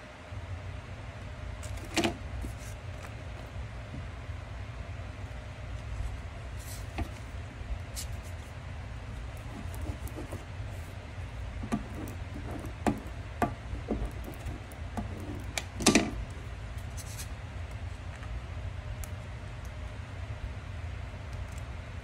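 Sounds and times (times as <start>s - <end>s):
low steady hum: 0.0s - 22.0s
squeegee scraping car window: 9.4s - 10.5s, 11.6s - 16.2s.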